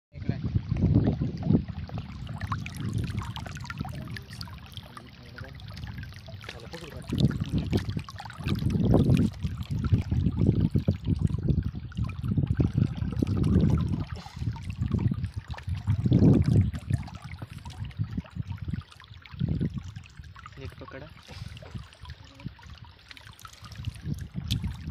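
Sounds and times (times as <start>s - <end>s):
low rumbles on microphone: 0.1s - 23.0s, 23.6s - 24.9s
stream trickling over rocks: 0.2s - 24.9s.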